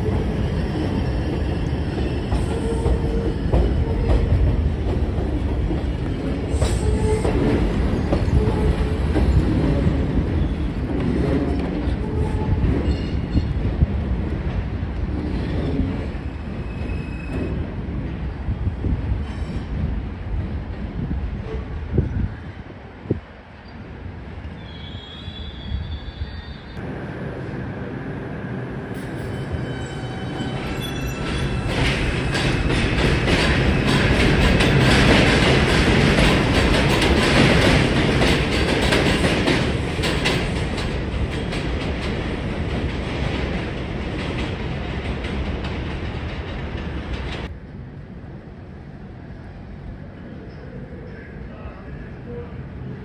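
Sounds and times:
subway train wheels clattering: 0:00.0 - 0:53.0
high wheel squeal: 0:29.0 - 0:31.7.

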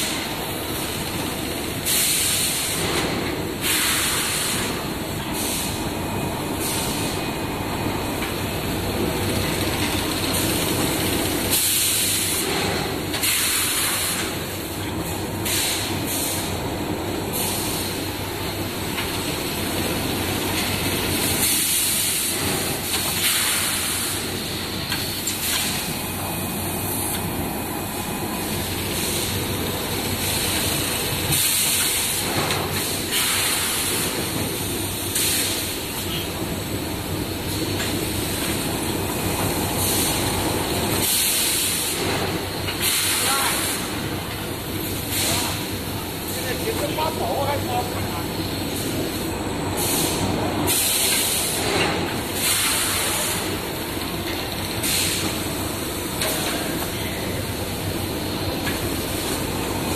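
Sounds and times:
pneumatic air hisses: 0:01.8 - 0:05.9, 0:06.6 - 0:07.2, 0:11.5 - 0:14.7, 0:15.4 - 0:16.5, 0:17.3 - 0:18.0, 0:21.4 - 0:27.3, 0:28.0 - 0:29.4, 0:30.0 - 0:36.3, 0:39.7 - 0:40.3, 0:41.0 - 0:44.2, 0:44.8 - 0:45.8, 0:48.7 - 0:59.6.

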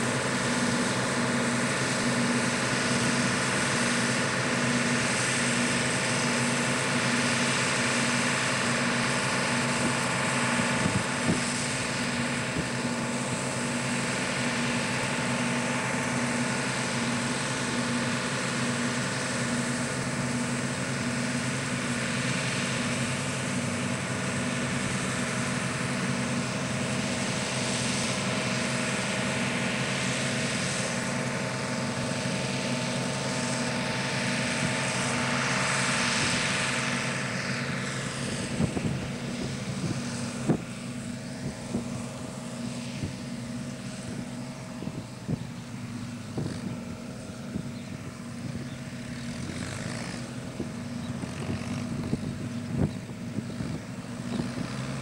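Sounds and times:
combine harvester drone: 0:00.0 - 0:55.0.

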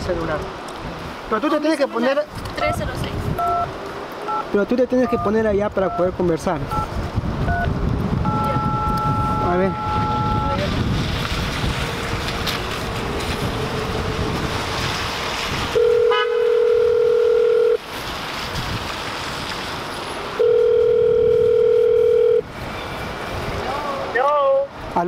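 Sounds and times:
traffic: 0:00.0 - 0:25.0
wind noise: 0:02.3 - 0:03.9, 0:05.0 - 0:16.5, 0:17.8 - 0:20.2, 0:22.4 - 0:25.0
telephone ringback tone: 0:07.5 - 0:10.6, 0:15.8 - 0:17.8, 0:20.4 - 0:22.4.

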